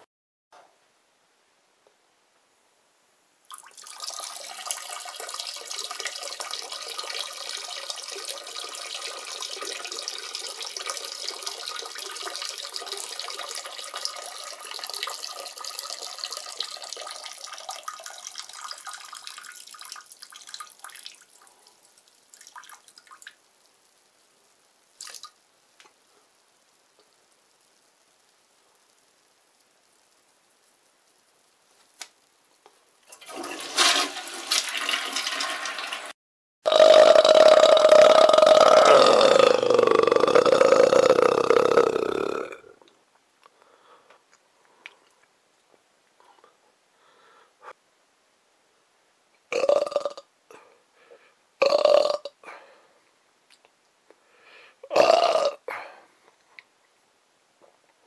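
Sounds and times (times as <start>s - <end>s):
loud burps: 36.6s - 42.8s, 49.5s - 50.3s, 51.6s - 52.6s, 54.8s - 55.9s.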